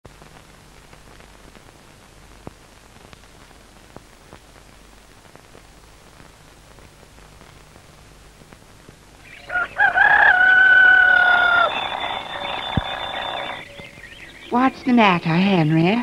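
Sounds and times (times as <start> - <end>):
film soundtrack hiss and crackle: 0.0 - 16.0
low hum: 9.4 - 15.2.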